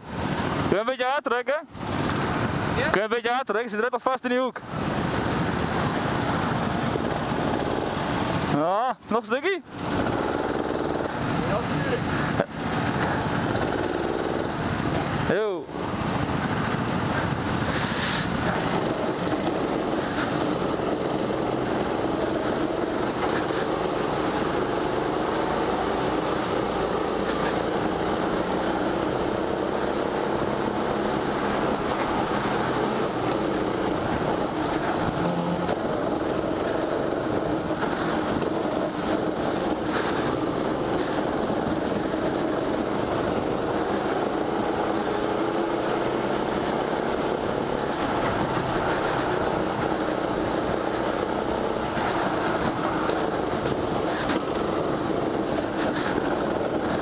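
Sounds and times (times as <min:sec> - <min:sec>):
go-kart engine running: 0:00.0 - 0:00.8, 0:01.7 - 0:03.0, 0:04.6 - 0:57.0
steady hiss: 0:17.6 - 0:35.3.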